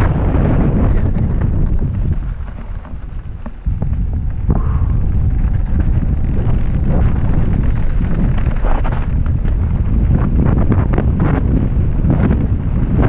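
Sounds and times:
wind buffeting microphone: 0.0s - 13.0s
tyres crunching over gravel: 0.5s - 10.4s.

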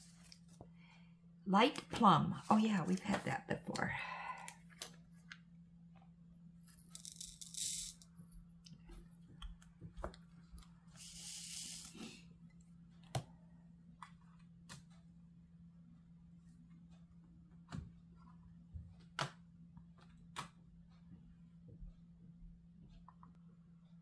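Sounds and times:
plastic beads rattling in a tray: 6.8s - 8.1s.

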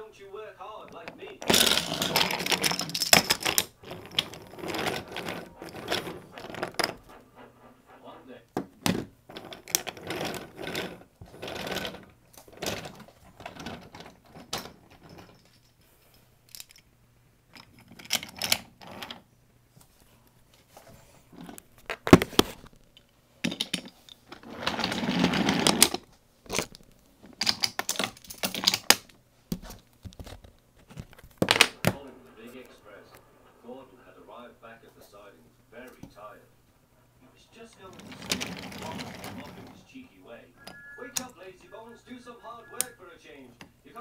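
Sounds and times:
wood rubbing and scraping: 0.8s - 15.5s, 24.3s - 26.8s, 36.9s - 43.0s
wooden toy pieces clacking: 0.9s - 7.2s, 8.6s - 15.7s, 24.9s - 29.1s, 37.8s - 39.7s.

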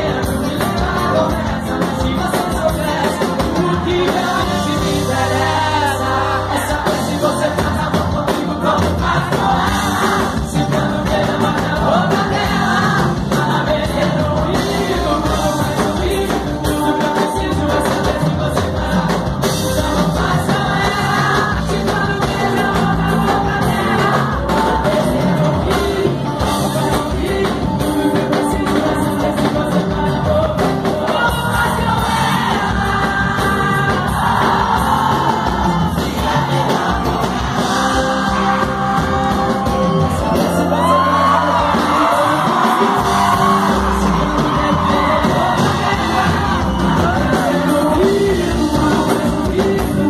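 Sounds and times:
live band playing: 0.0s - 50.0s
crowd shouting: 31.3s - 48.3s.

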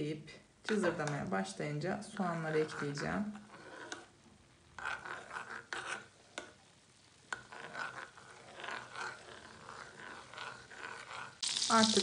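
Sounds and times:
metal spoon scraping frying pan: 2.3s - 4.1s, 4.8s - 6.5s, 7.3s - 12.0s
butter sizzling: 4.4s - 12.0s.

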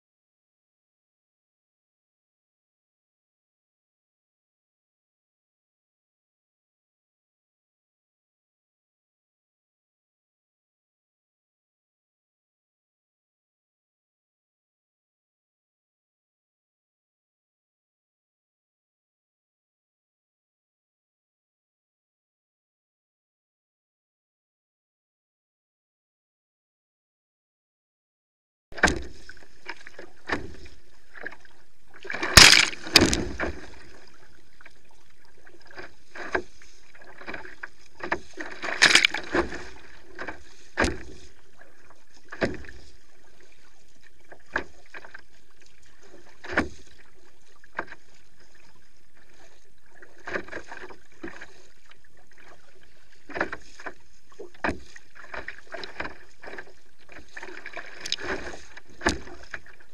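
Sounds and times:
paddle splashing water: 28.8s - 59.9s
waves slapping hull: 28.8s - 59.9s.

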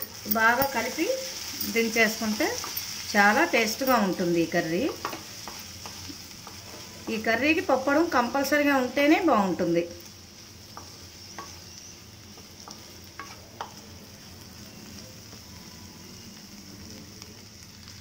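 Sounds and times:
curry sizzling in a pan: 0.0s - 18.0s
spatula tapping and scraping pan: 4.8s - 7.3s, 10.7s - 13.8s.

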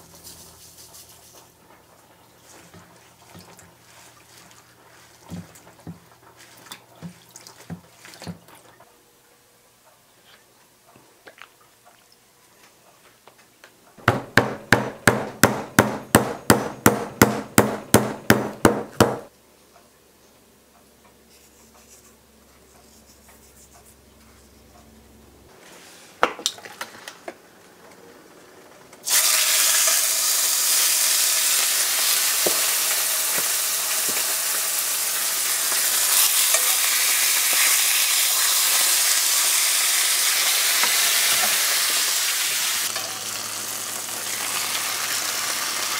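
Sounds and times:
chicken sizzling in a skillet: 29.0s - 45.9s.

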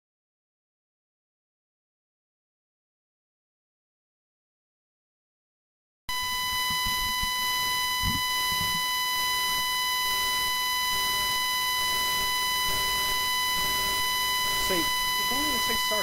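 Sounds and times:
high-pitched microphone feedback whine: 6.1s - 16.0s.

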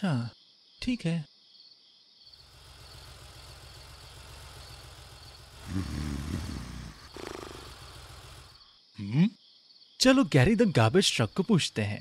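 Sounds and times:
crickets chirping: 0.0s - 12.0s
cartoon vehicle engine revving: 2.4s - 8.6s.

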